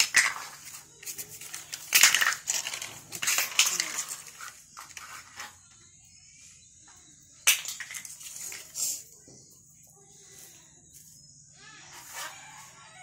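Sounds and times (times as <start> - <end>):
plastic toys clattering on concrete: 0.0 - 5.9, 6.9 - 11.2.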